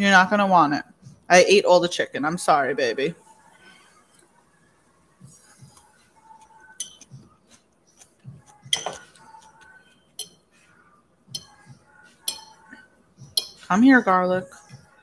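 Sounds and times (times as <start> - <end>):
fork clinking on food container: 6.8 - 7.1.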